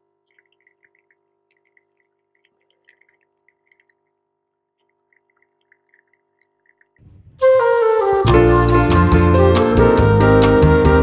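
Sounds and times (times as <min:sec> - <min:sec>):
coffee dripping into a mug: 0:00.0 - 0:07.0
faint steady hum: 0:00.0 - 0:07.4.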